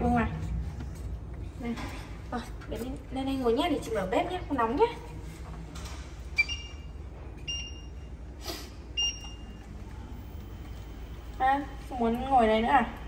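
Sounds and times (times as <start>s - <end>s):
short electronic beeps: 6.4s - 8.1s, 9.0s - 9.6s.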